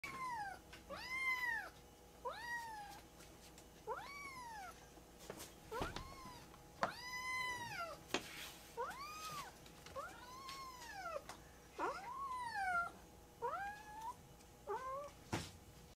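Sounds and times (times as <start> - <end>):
kitten meowing: 5.7 - 8.0, 11.8 - 15.1.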